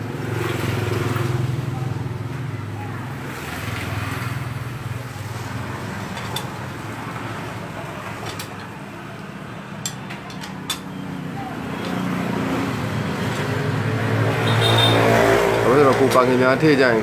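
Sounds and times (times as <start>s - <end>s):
traffic hum: 0.0s - 17.0s.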